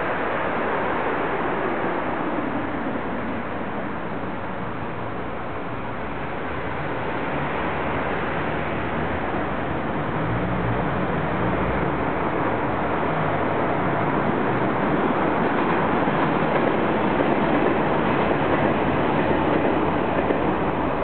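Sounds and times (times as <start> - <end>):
road traffic rushing: 4.6 - 16.0.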